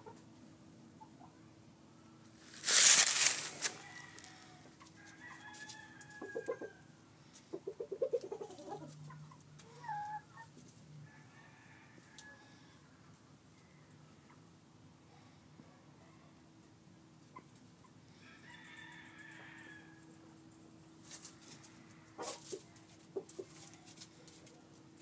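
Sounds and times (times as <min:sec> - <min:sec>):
chickens rustling: 0:02.3 - 0:06.7, 0:07.3 - 0:10.9, 0:20.9 - 0:25.0
hen clucking: 0:07.5 - 0:10.5.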